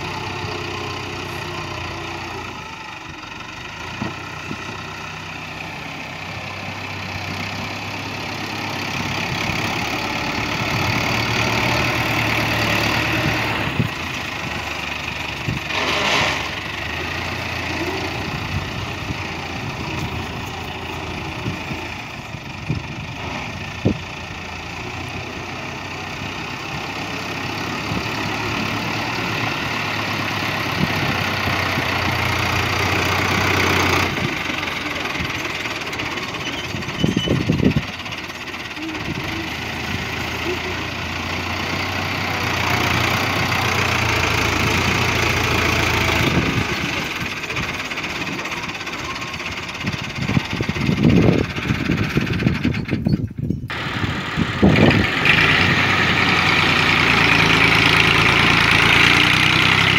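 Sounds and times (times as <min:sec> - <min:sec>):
dozer blade pushing soil: 0:00.0 - 0:22.2, 0:24.6 - 0:59.9
diesel tractor engine running: 0:00.0 - 0:59.9.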